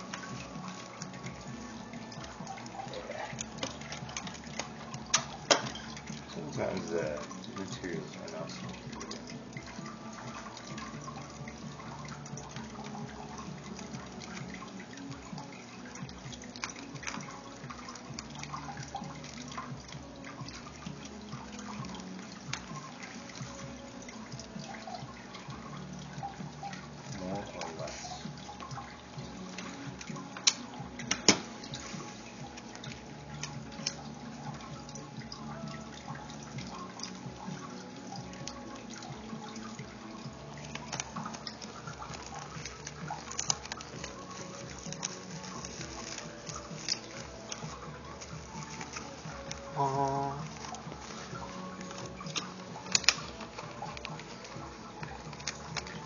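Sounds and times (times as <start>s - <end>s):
plastic straws crinkling and clicking: 0.0s - 56.0s
bubble wrap handled: 40.4s - 56.0s.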